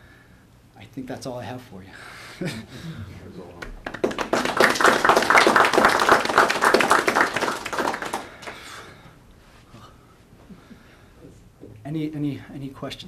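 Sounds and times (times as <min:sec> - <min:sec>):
audience applauding: 0:03.6 - 0:08.8.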